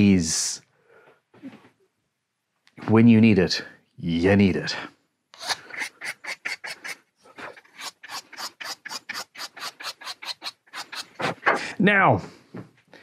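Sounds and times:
file rasping on wood: 5.4s - 11.4s.

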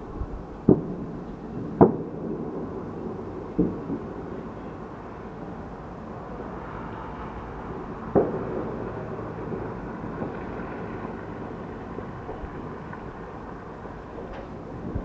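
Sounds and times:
low background noise: 0.0s - 15.0s
distant fireworks bangs: 0.6s - 4.7s, 6.6s - 15.0s.

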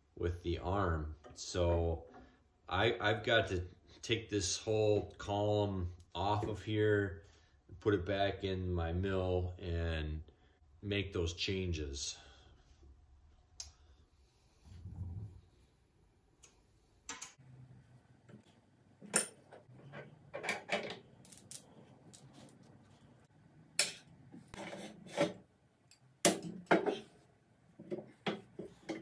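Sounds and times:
metal parts clinking and clanking: 19.1s - 23.1s.

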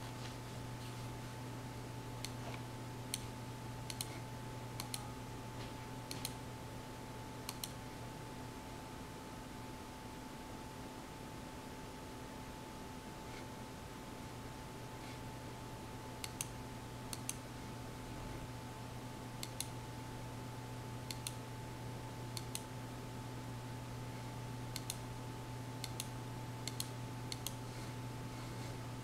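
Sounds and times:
steady low hum: 0.0s - 29.0s
computer mouse clicks: 2.2s - 3.3s, 3.9s - 4.2s, 4.8s - 5.1s, 6.1s - 6.4s, 7.4s - 7.8s, 16.2s - 17.4s, 19.4s - 19.8s, 21.1s - 21.4s, 22.4s - 22.7s, 24.7s - 25.0s, 25.8s - 27.6s.

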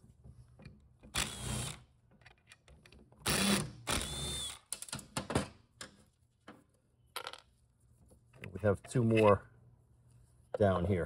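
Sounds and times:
cordless driver spinning screws: 1.2s - 1.8s.

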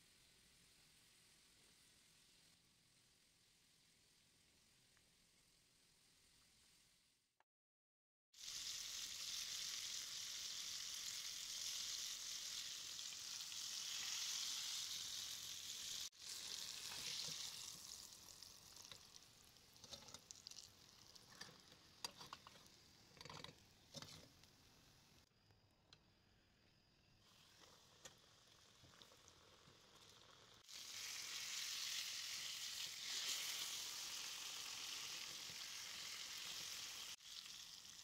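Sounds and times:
fish sizzling in hot oil: 8.3s - 25.2s, 27.2s - 38.0s.

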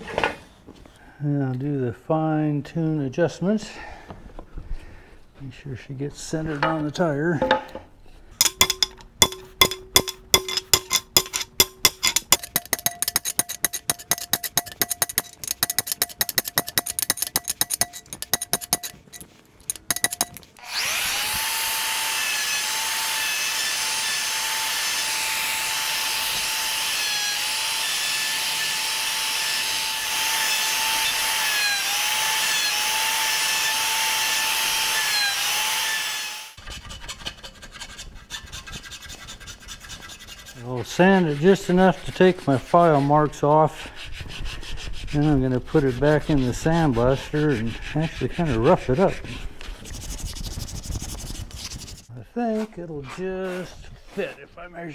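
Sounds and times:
file scraping: 8.4s - 54.4s
router whining: 19.8s - 36.6s.

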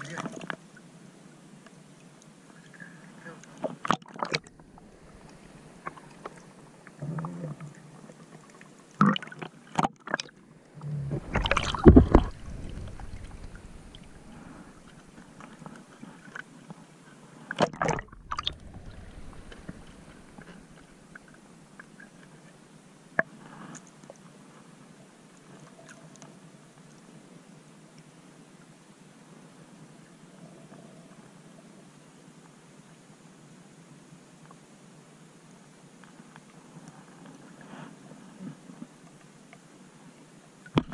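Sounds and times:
seawater sloshing and gurgling: 4.1s - 8.2s, 9.0s - 16.4s, 17.6s - 22.3s
loud water sloshes: 4.4s - 6.9s, 10.7s - 16.0s, 17.8s - 21.9s.

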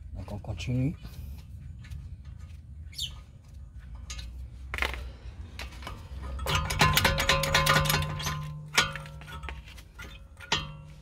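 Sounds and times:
metal tools clinking: 5.7s - 11.0s.

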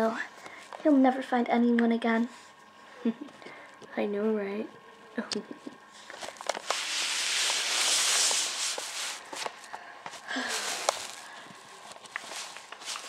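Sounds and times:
plastic toys rustling on carpet: 6.0s - 13.0s.

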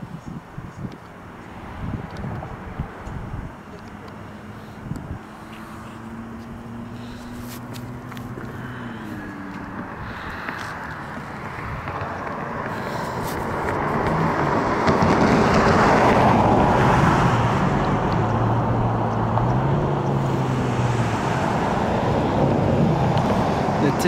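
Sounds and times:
road noise: 0.0s - 24.0s
vehicle engine running: 1.2s - 16.8s.

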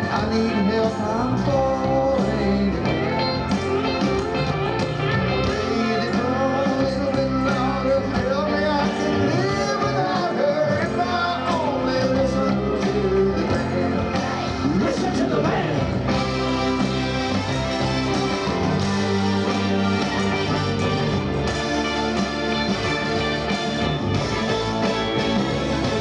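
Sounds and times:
man singing lead vocal: 0.0s - 3.4s, 5.4s - 16.0s
live rock band: 0.0s - 26.0s.

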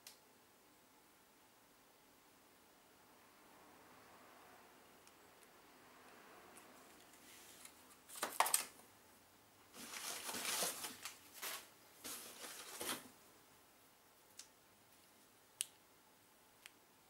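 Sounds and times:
rustling in cardboard box: 9.7s - 13.2s.

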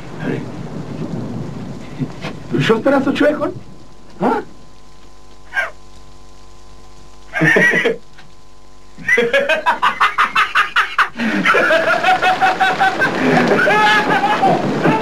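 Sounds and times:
person crying out: 5.5s - 5.8s, 13.2s - 15.0s
rapid rhythmic laughter: 7.3s - 8.0s, 9.0s - 15.0s.

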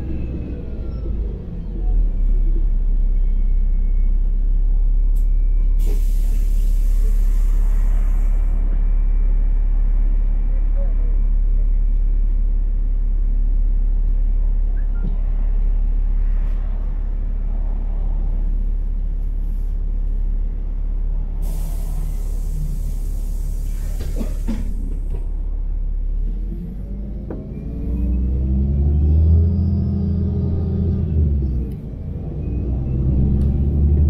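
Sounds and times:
bus engine idling: 0.0s - 34.0s
compressed air hiss: 5.8s - 8.3s, 21.4s - 24.7s.

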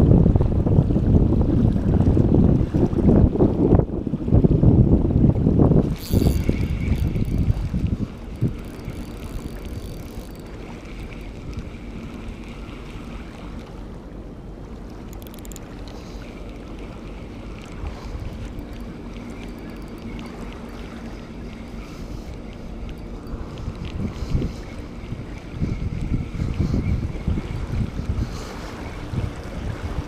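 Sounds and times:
water lapping at shore: 0.0s - 30.0s
wind rumbling on microphone: 0.0s - 30.0s
fishing reel whirring: 5.8s - 13.5s, 14.9s - 29.1s.

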